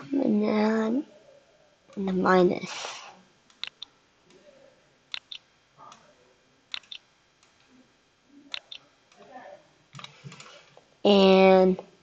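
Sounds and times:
computer mouse clicking: 0:03.5 - 0:04.4, 0:05.1 - 0:06.0, 0:06.7 - 0:07.7, 0:08.5 - 0:09.2, 0:10.0 - 0:10.8.

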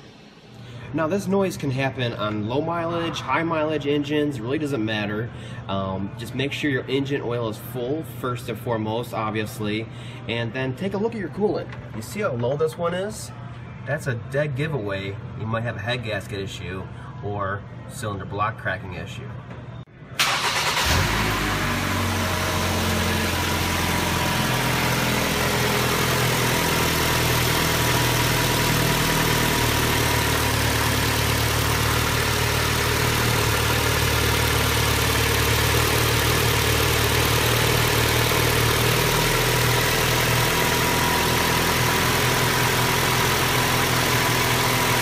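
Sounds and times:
car engine idling: 0:20.2 - 0:45.0.

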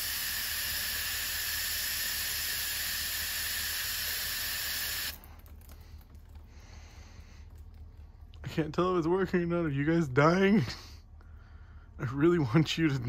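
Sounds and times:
aerosol can spraying: 0:00.0 - 0:05.2.

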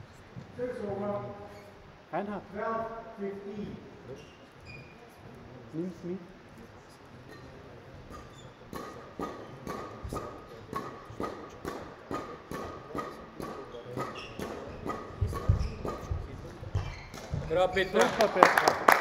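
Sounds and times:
sharp rhythmic knocks: 0:08.0 - 0:18.4.

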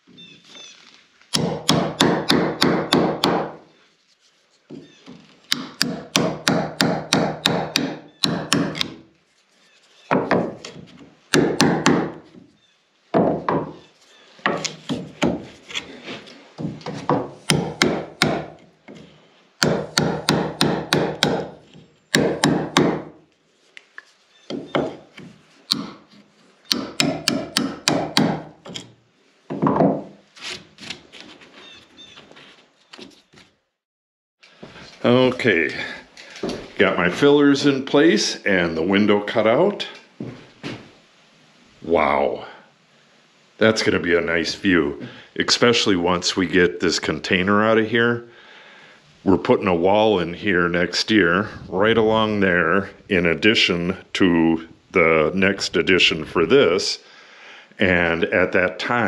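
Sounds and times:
hammer tapping steel blade into wood: 0:05.5 - 0:09.0, 0:26.7 - 0:28.9.

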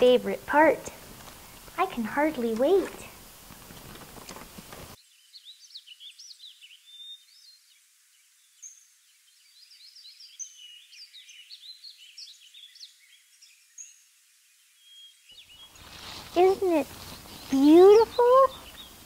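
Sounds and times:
flock of birds chirping: 0:14.9 - 0:19.0.

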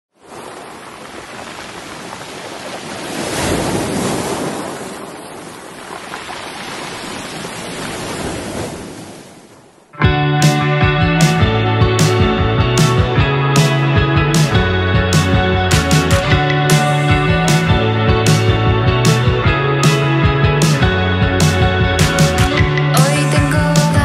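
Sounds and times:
ocean surf breaking on rocks: 0:00.2 - 0:09.8
guitar music: 0:10.0 - 0:24.0.

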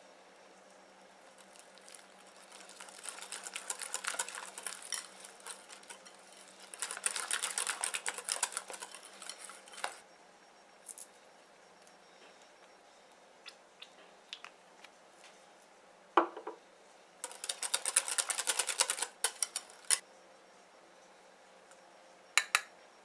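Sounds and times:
whisk ticking against glass bowl: 0:01.4 - 0:10.0, 0:17.2 - 0:20.0.

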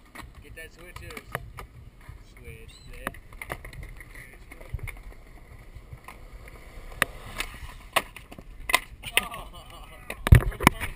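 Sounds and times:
skateboard tail popping: 0:00.0 - 0:10.9
skateboard wheels rolling on concrete: 0:00.0 - 0:10.9
skateboard slapping down: 0:03.0 - 0:10.9.

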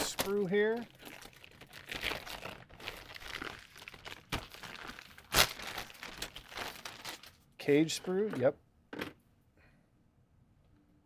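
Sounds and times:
plastic bag crinkling: 0:00.0 - 0:07.4
sharp plastic crackles: 0:00.0 - 0:07.4.

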